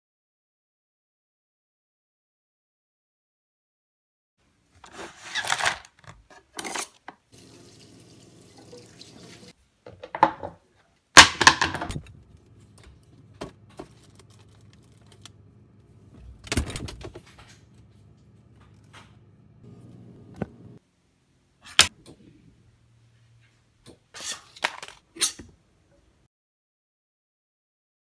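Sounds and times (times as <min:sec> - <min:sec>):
freezer drawer opening: 0:04.8 - 0:07.0, 0:16.1 - 0:17.7
kitchen clatters and rustles: 0:04.8 - 0:07.3, 0:11.2 - 0:15.3, 0:23.4 - 0:25.5
water running from tap: 0:07.3 - 0:09.6
steady low hum: 0:12.0 - 0:23.2.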